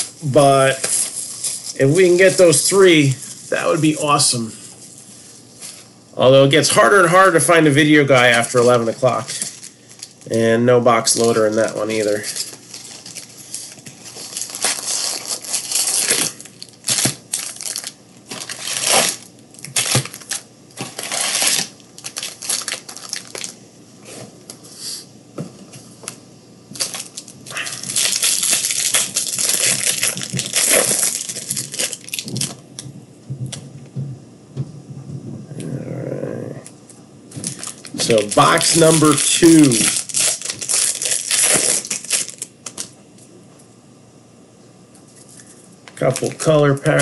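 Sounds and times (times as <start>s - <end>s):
plastic wrapping crinkling and tearing: 6.8s - 10.4s, 11.0s - 23.6s, 26.7s - 32.8s, 37.3s - 42.9s, 45.2s - 47.0s.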